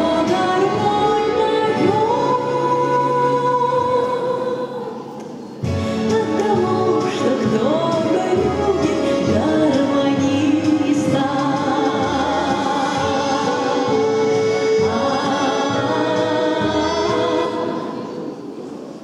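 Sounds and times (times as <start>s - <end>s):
choir singing sustained notes: 11.7s - 19.0s.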